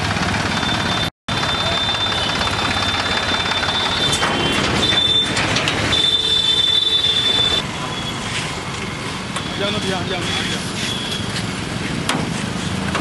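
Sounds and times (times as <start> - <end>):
tractor engine running: 0.0 - 7.6
busy street noise: 0.0 - 13.0.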